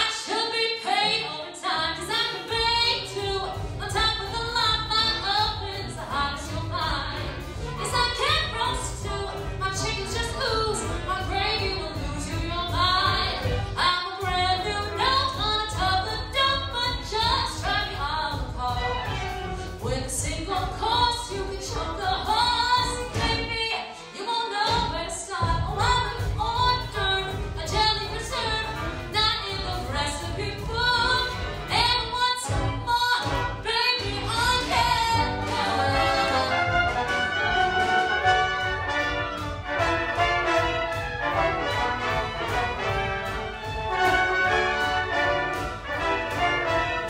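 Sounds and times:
brassy pit orchestra playing: 1.0s - 24.4s, 25.6s - 47.0s.

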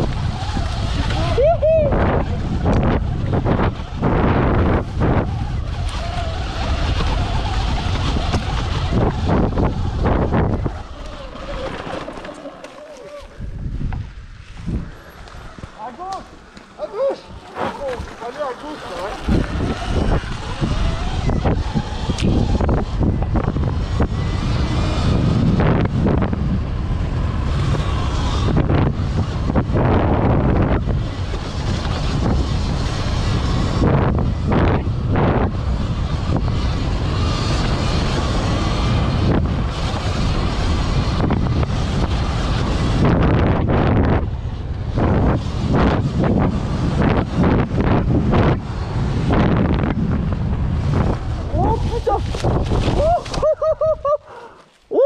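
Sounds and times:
wind noise on microphone: 0.0s - 12.3s, 13.1s - 15.7s, 17.0s - 54.3s
tyre noise: 0.0s - 55.0s
bike knocking over rough ground: 11.0s - 14.0s.

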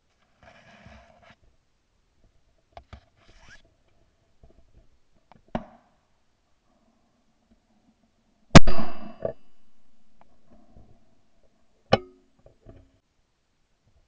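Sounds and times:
loud shotgun shot: 8.6s - 9.5s.

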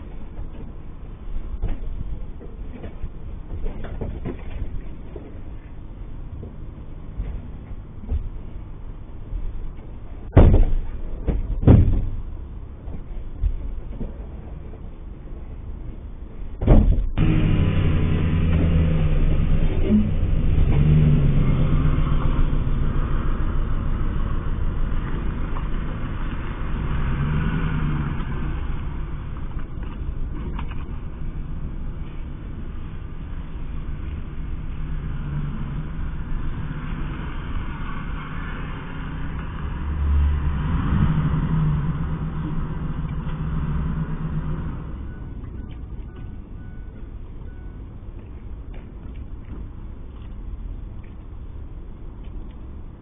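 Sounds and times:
loud thumps like doors slamming: 10.3s - 12.3s, 16.6s - 17.2s
van engine starting and driving off: 16.1s - 48.6s.

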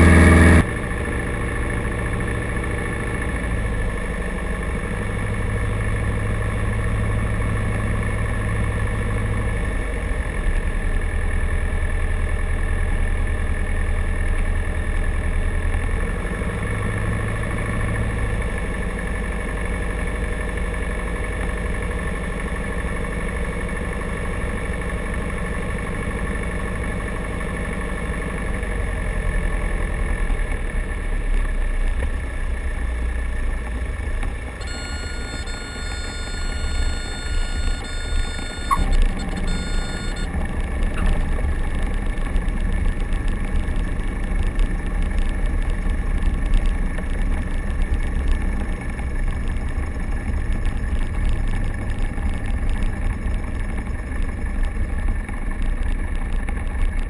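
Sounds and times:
stall warning horn tone: 34.6s - 41.2s.

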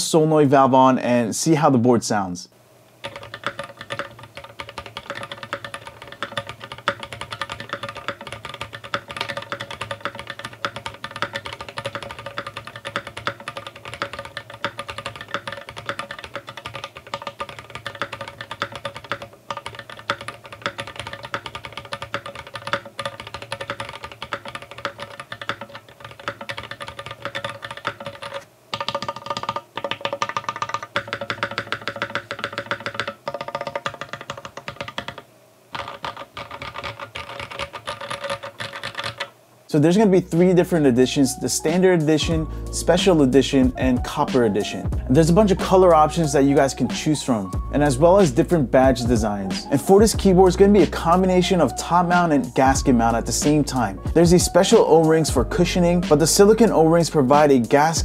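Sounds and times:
typing on mechanical keyboard: 3.0s - 39.3s, 48.2s - 55.4s, 56.0s - 58.0s
background music: 39.8s - 58.0s.

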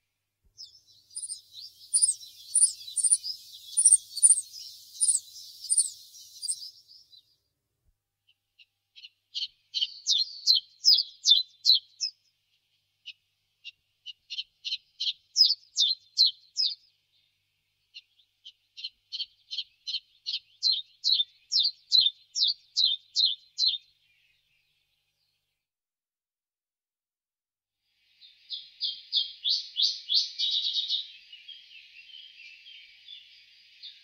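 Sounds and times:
bird singing high sharp notes: 0.6s - 7.0s.

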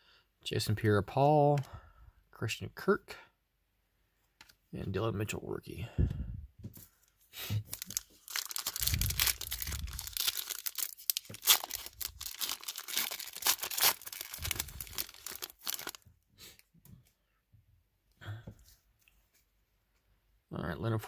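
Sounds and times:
foil wrapper tearing and crinkling: 7.6s - 16.0s.

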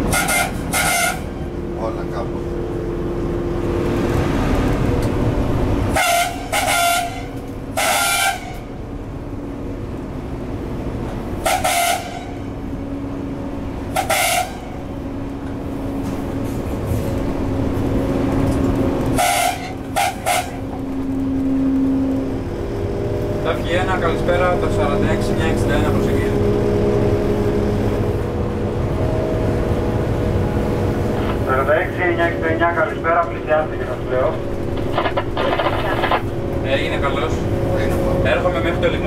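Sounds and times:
locomotive horn short toots: 0.0s - 1.4s, 5.9s - 8.7s, 11.4s - 12.5s, 13.9s - 14.8s, 19.2s - 20.7s
locomotive running hum: 0.0s - 39.0s.

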